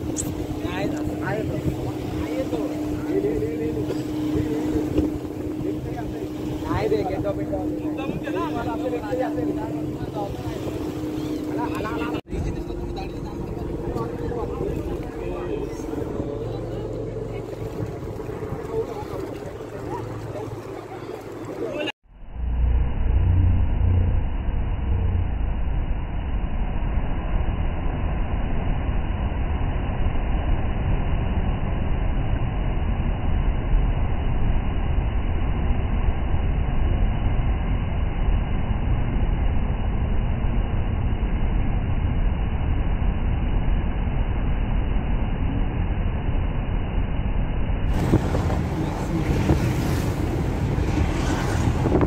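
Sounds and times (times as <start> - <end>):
waves breaking on beach: 0.0 - 22.0, 47.9 - 52.0.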